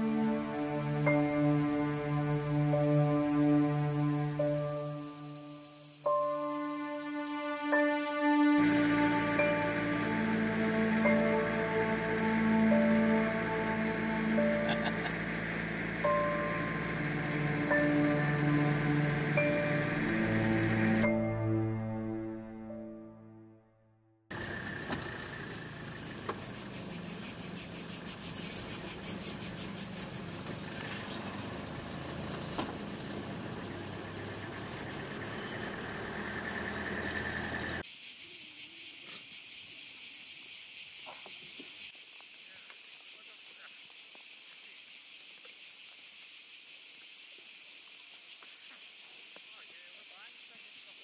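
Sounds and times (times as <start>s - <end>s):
insects chirring: 0.0s - 21.5s, 24.3s - 51.0s
car driving rumble: 8.8s - 21.0s, 24.3s - 37.8s.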